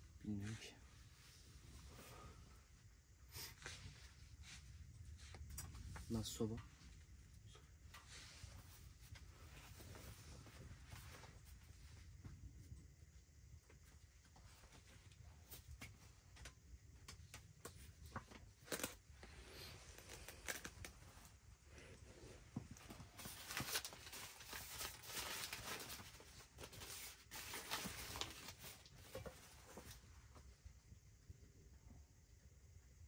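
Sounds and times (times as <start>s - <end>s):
newspaper crinkling and rustling: 17.8s - 21.2s, 22.8s - 30.0s.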